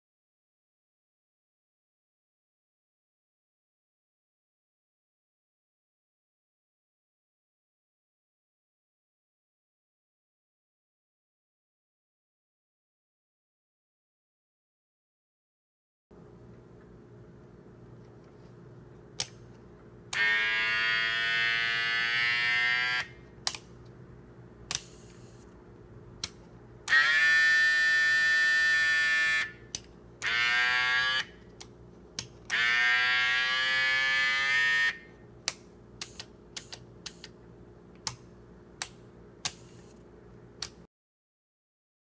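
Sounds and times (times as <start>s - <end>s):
miniature air compressor buzzing: 20.1s - 23.2s, 26.9s - 31.4s, 32.5s - 35.1s.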